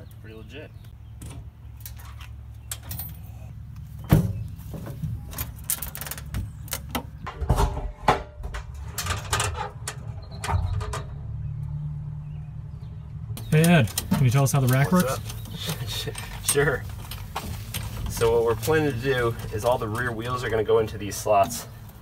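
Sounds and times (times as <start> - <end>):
metal box lid clanking: 7.1 - 11.1.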